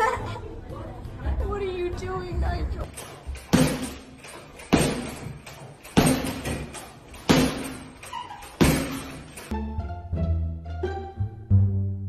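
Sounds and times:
punches thudding on heavy bag: 0:03.0 - 0:08.0, 0:08.6 - 0:09.4.

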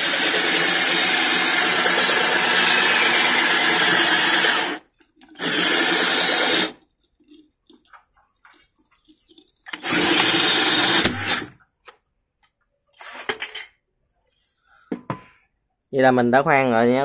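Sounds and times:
drill cutting glass: 0:00.0 - 0:06.8, 0:09.7 - 0:11.6.

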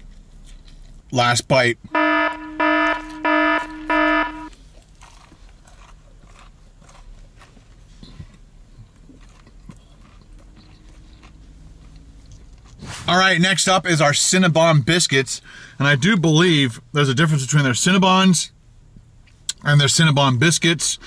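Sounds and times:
faint chewing: 0:00.0 - 0:01.1, 0:04.5 - 0:12.8
continuous buzzing tone: 0:01.9 - 0:04.5
electronic alarm beeps: 0:02.0 - 0:04.5.

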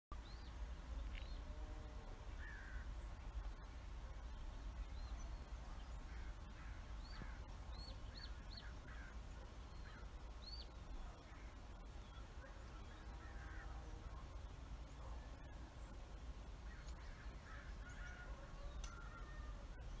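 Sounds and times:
low steady rumble: 0:00.1 - 0:20.0
crows cawing: 0:02.4 - 0:02.9, 0:06.1 - 0:07.5, 0:08.3 - 0:09.2, 0:13.2 - 0:13.8, 0:16.7 - 0:19.5.

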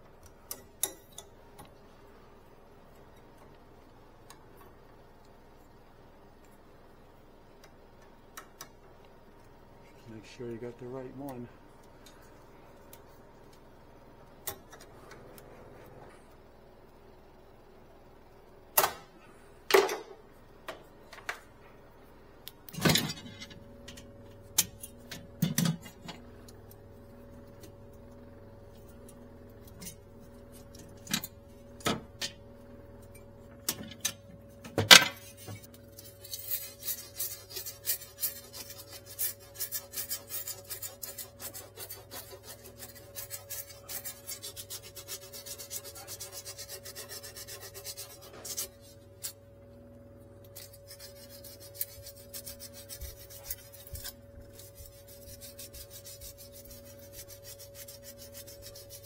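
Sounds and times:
steady low hum: 0:00.0 - 0:59.0
rubbing on copper tubing: 0:36.0 - 0:49.0, 0:50.6 - 0:59.0.

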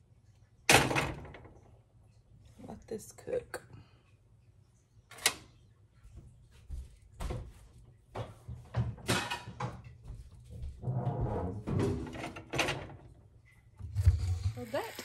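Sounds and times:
cabinet doors and drawers closing: 0:10.9 - 0:13.0.

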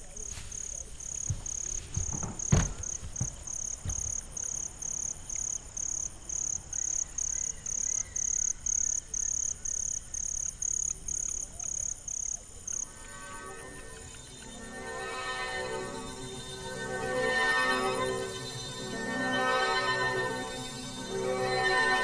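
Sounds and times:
cricket chirping: 0:00.0 - 0:22.0
soft low thumps: 0:00.8 - 0:04.4.

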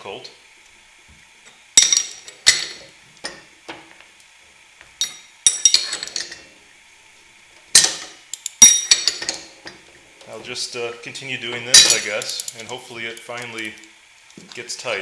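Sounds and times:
wrenches clinking on steel: 0:05.0 - 0:06.4, 0:07.8 - 0:09.5, 0:11.7 - 0:13.8.

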